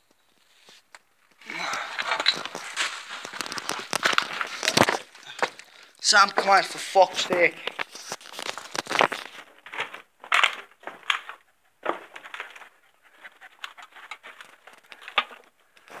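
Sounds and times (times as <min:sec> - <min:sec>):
stones and glass crunching: 0:01.4 - 0:06.4, 0:07.2 - 0:10.8.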